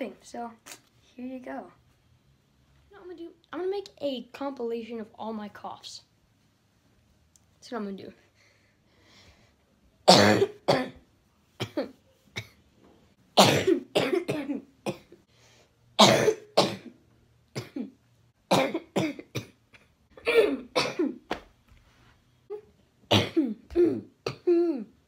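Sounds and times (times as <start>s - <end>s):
boy coughing: 10.1s - 11.0s, 11.6s - 12.6s, 13.4s - 15.2s, 16.0s - 17.0s, 17.6s - 21.2s, 22.5s - 25.0s.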